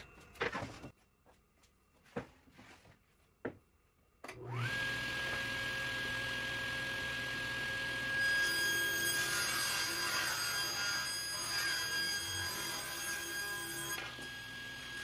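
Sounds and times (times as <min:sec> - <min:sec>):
table saw motor whine: 0:04.4 - 0:15.0.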